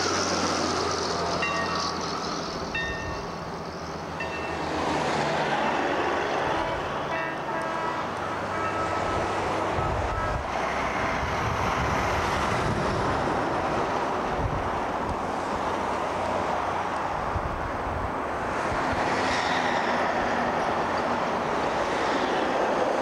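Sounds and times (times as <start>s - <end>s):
wind gusting on microphone: 8.4s - 23.0s.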